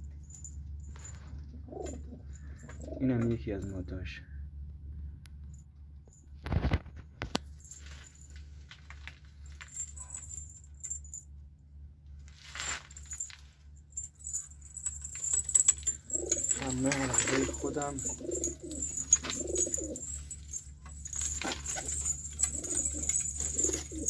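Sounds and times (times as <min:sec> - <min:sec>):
low steady hum: 0:00.0 - 0:24.0
pigeons clicking in loft: 0:01.2 - 0:03.4, 0:14.7 - 0:24.0.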